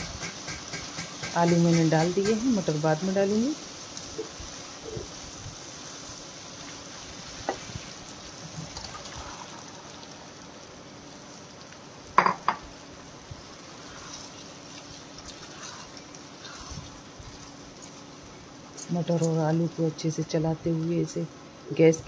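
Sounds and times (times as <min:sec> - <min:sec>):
spoon stirring potatoes in pan: 0:13.5 - 0:19.4.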